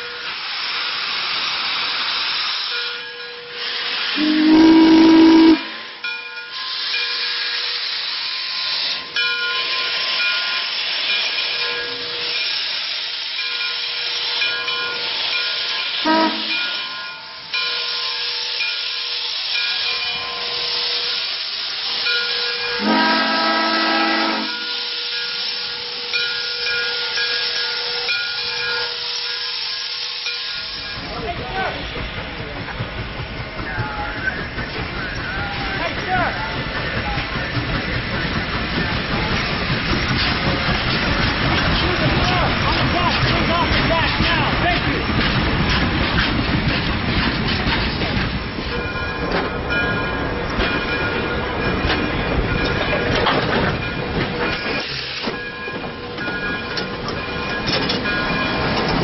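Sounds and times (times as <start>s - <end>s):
steam hissing from locomotive: 0.0s - 59.0s
steam whistle blasts: 3.6s - 5.9s, 16.0s - 16.8s, 22.3s - 26.2s.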